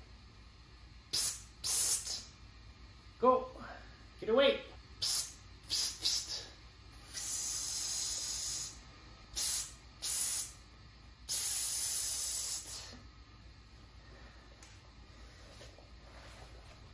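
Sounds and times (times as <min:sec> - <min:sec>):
person hissing through teeth: 0:01.1 - 0:02.3, 0:05.0 - 0:10.6, 0:11.3 - 0:13.0.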